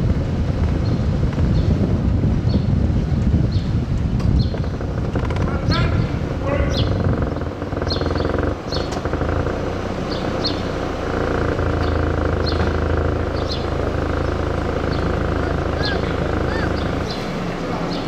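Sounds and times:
vehicle engine hum: 0.0s - 18.0s
small birds chirping: 3.4s - 18.0s.

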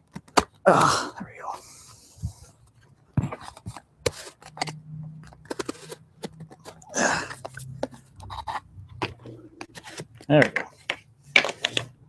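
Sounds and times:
plastic scraping on cardboard: 3.2s - 12.0s.

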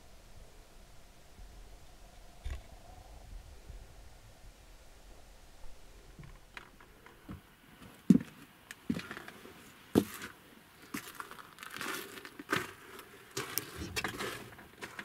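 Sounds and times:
footsteps crunching in snow: 10.0s - 15.0s.

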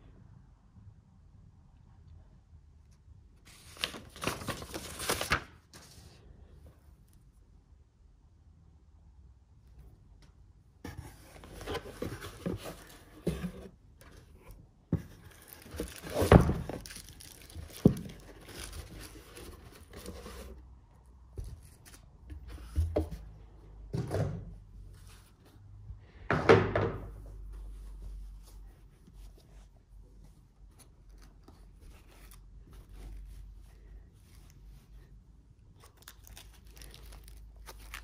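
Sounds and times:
fabric bags rustling: 15.3s - 19.4s.

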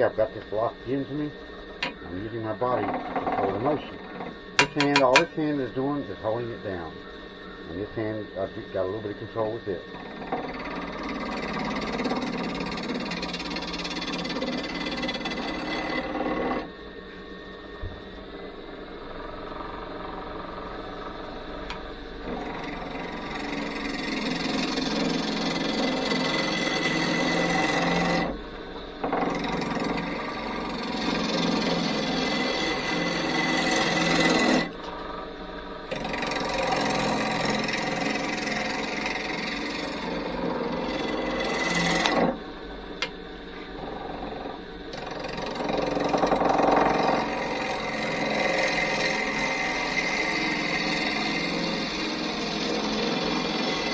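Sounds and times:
lathe tool scraping wood: 0.0s - 6.9s, 7.7s - 16.7s, 19.3s - 28.4s, 29.0s - 35.3s, 35.9s - 42.4s, 43.6s - 53.9s
lathe spinning: 0.0s - 53.9s.

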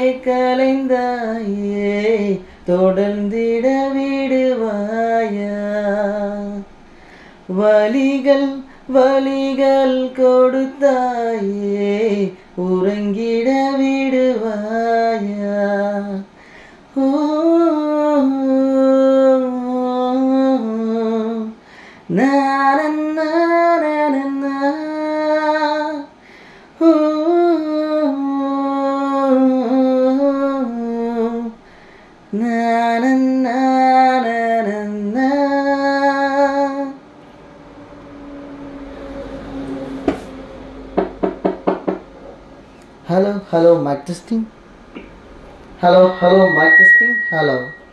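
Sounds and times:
low hiss: 0.0s - 37.5s, 42.3s - 47.9s
film song through speaker: 45.8s - 47.9s.

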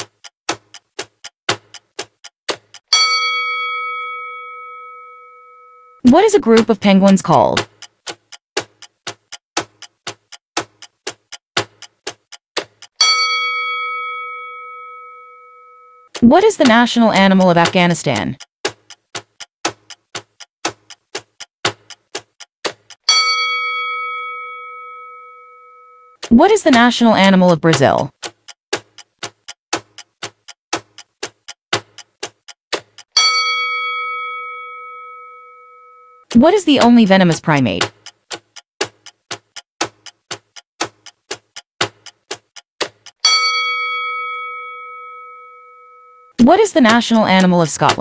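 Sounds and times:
clock tick-tock: 0.0s - 48.0s
bell chime: 3.0s - 6.0s, 13.0s - 16.0s, 23.1s - 26.1s, 33.2s - 36.2s, 43.2s - 46.3s.

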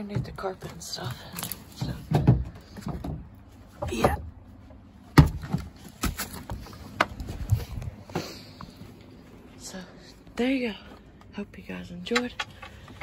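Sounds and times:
knocks and bumps among boxes: 5.1s - 8.2s.

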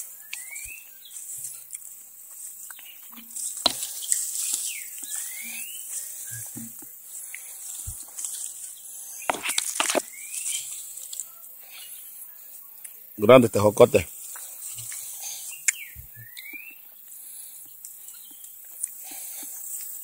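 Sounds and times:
leaves and twigs rustling: 0.0s - 20.0s
short rising whistled call: 0.1s - 1.0s, 4.7s - 6.6s, 15.4s - 16.8s.

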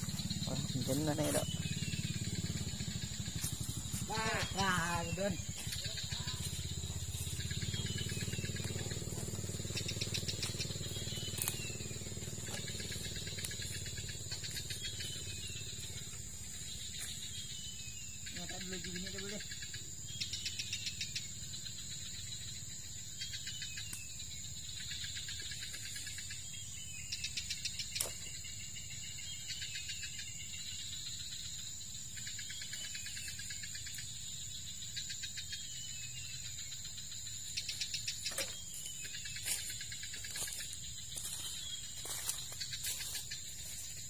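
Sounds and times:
dry leaves crackling: 0.0s - 17.3s, 38.3s - 44.0s
insects buzzing and chirping: 0.0s - 44.0s.

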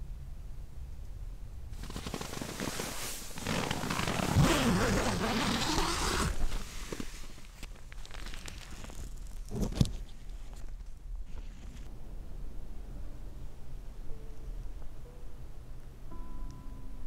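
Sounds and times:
tent fabric rustling: 1.8s - 11.9s.

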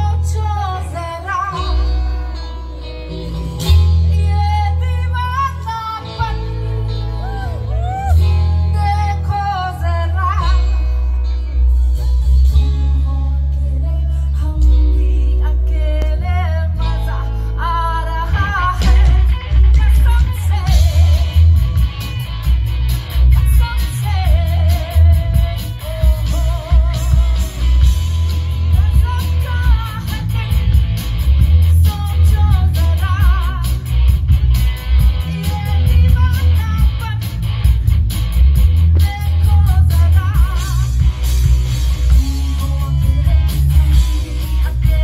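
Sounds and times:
woman singing with vibrato: 0.0s - 2.8s, 3.9s - 11.3s, 12.7s - 21.6s, 23.3s - 30.9s, 31.7s - 33.8s, 35.2s - 37.5s, 38.9s - 41.2s, 42.0s - 45.0s
live rock band playing: 0.0s - 45.0s.

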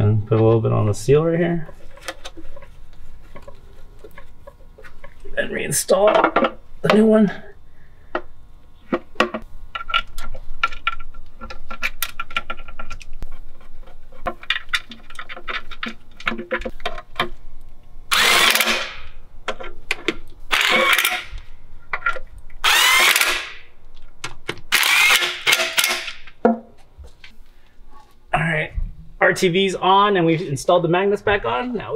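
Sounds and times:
power tool driving bolts: 18.1s - 19.1s, 20.5s - 21.4s, 22.6s - 23.6s, 24.7s - 26.4s.

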